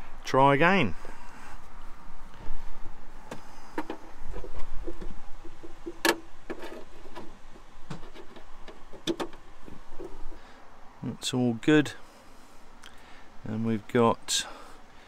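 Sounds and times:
connector clicks and knocks: 3.3 - 10.2.

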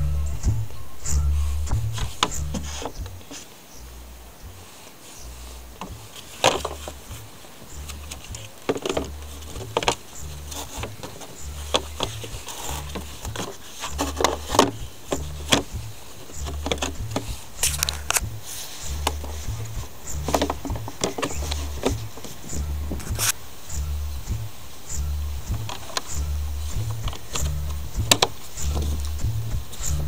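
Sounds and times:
paper filter rustling: 1.9 - 3.7, 4.6 - 23.4, 25.4 - 30.0
plastic clicks and knocks: 8.0 - 10.0, 10.6 - 15.8, 16.4 - 18.2, 20.2 - 23.2, 27.1 - 29.1.

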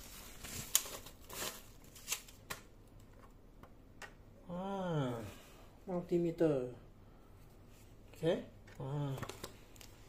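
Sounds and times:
plastic rustle: 0.0 - 2.4.

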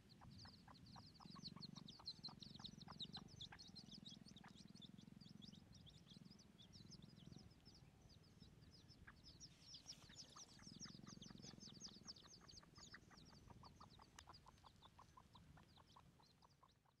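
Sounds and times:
junglefowl clucking: 9.9 - 17.0.

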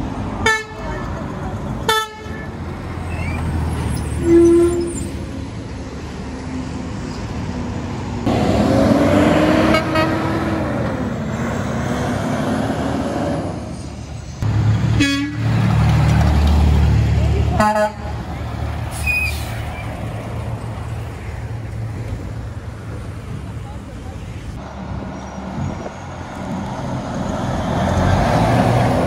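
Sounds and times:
diesel trucks driving past: 0.0 - 29.0
truck horn toots: 1.9 - 2.6, 4.2 - 5.1, 9.5 - 10.6, 14.9 - 15.5, 17.6 - 18.2.

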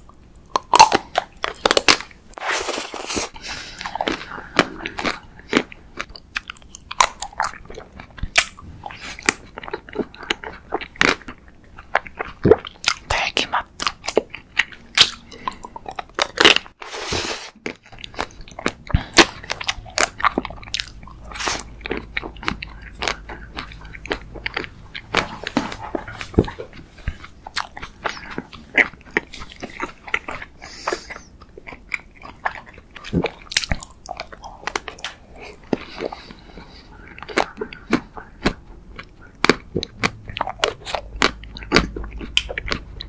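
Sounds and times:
person chewing with crunches: 0.0 - 43.0.

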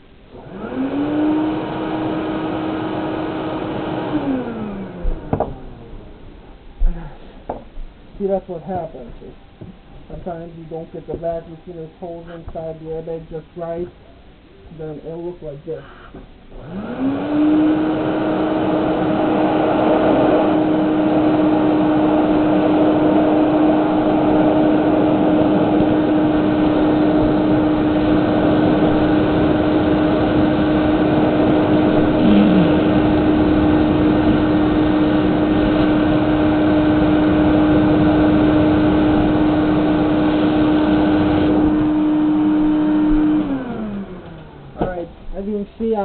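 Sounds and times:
vacuum cleaner motor humming: 0.0 - 6.4, 16.5 - 45.1.

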